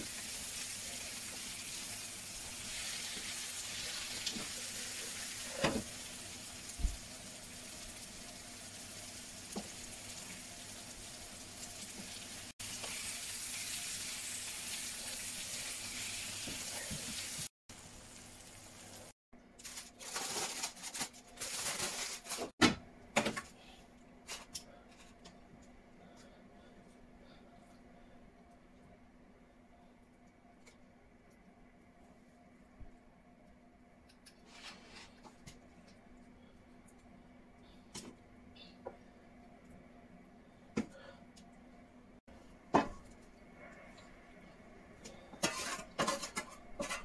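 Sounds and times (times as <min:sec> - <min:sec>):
potatoes sizzling in a pan: 0:00.0 - 0:19.1.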